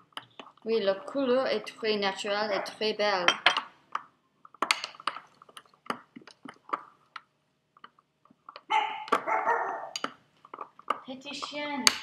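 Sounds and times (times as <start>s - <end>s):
small dog barking: 8.7s - 10.0s.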